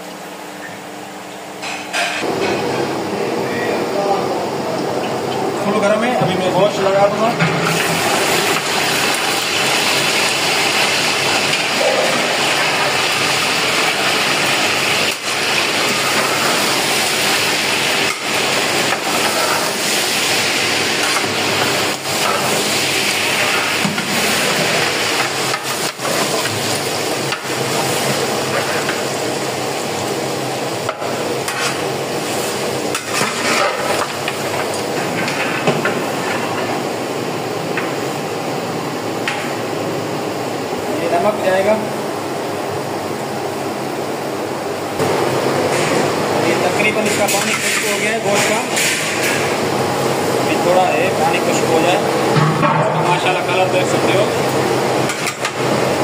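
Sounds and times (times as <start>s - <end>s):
meat sizzling in hot oil: 7.6s - 40.6s, 53.0s - 56.0s.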